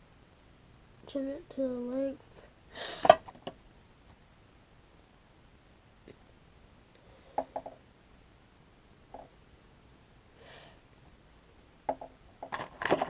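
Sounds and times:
short breathy hiss: 2.7s - 3.2s, 10.3s - 10.9s.

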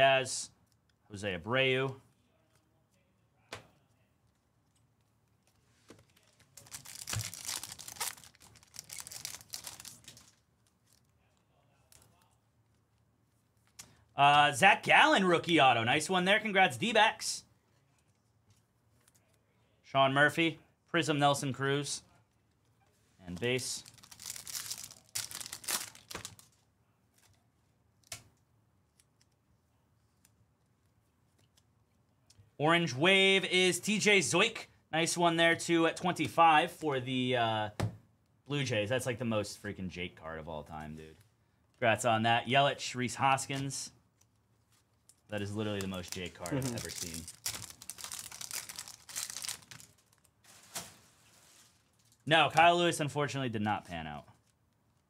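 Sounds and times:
card pack wrapper tearing and crinkling: 6.1s - 11.0s, 23.4s - 26.6s, 45.0s - 50.9s.

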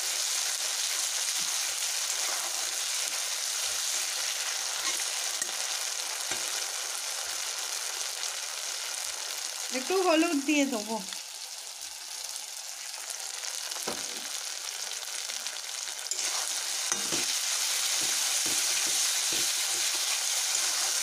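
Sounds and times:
masala sizzling in a pan: 0.0s - 21.0s
spatula scraping a pan: 0.9s - 6.6s, 16.1s - 21.0s.

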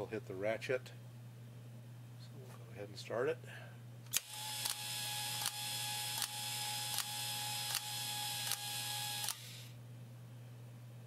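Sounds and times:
sharp ratchet clicks: 4.1s - 9.7s
electric motor whirring: 4.1s - 9.8s.

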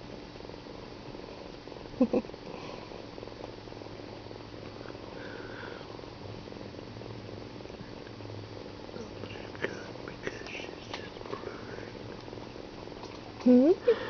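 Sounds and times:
kitten purring: 0.7s - 6.1s.

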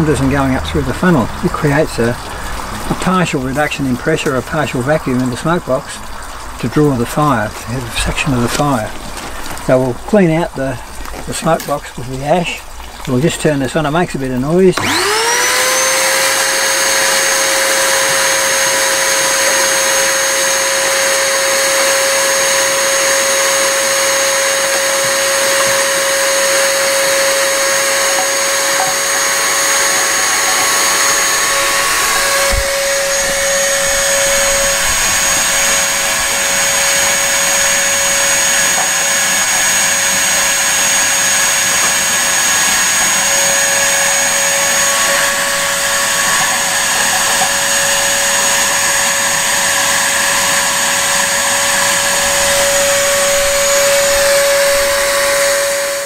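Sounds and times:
vacuum cleaner motor whining: 14.7s - 56.0s.

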